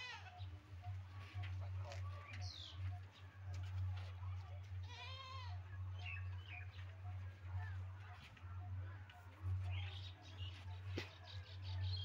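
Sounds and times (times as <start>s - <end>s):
goat bleating: 4.8s - 5.6s.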